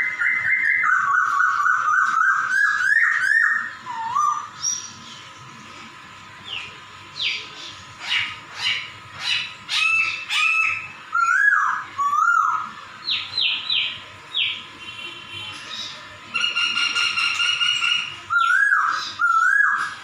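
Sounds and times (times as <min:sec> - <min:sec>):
bird whistling notes: 0:16.4 - 0:20.0.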